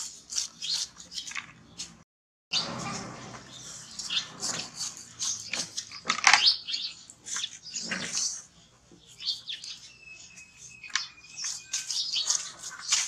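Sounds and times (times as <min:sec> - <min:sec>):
knife slicing pineapple rind: 0:00.0 - 0:01.3, 0:11.3 - 0:13.0.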